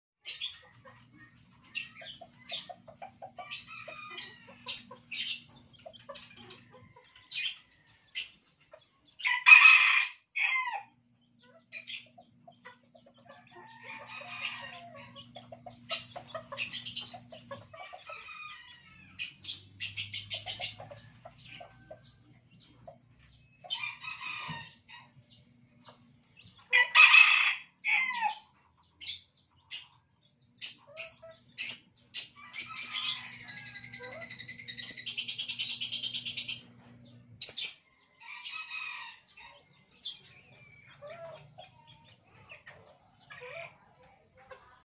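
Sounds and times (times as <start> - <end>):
chickens clucking and chirping: 0.2 - 44.9
rooster crowing: 9.2 - 11.0, 26.7 - 28.4, 32.4 - 34.7.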